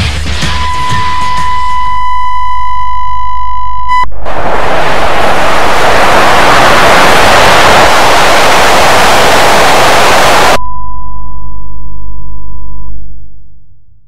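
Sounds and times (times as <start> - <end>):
television static hiss: 4.2 - 10.6.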